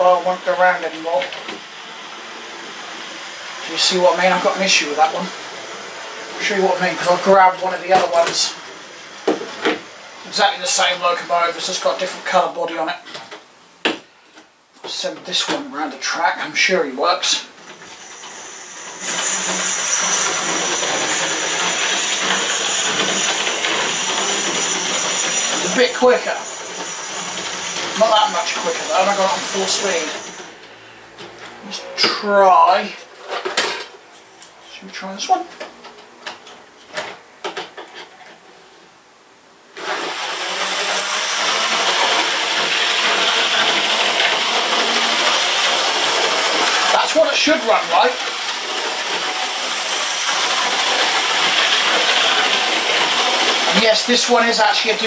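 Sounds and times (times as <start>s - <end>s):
model train motor whirring: 17.7s - 30.5s, 39.8s - 55.0s.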